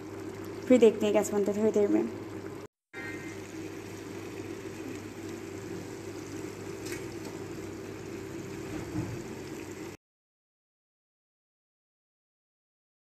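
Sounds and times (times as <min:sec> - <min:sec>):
curry bubbling in a pot: 0:00.0 - 0:10.0
steady hum: 0:00.0 - 0:10.0.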